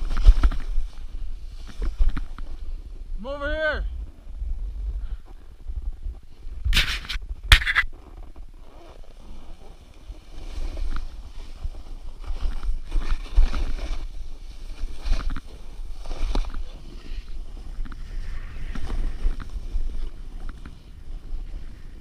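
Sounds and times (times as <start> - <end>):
wind rumble on microphone: 0.0 - 22.0
snowboard scraping on snow: 6.0 - 22.0.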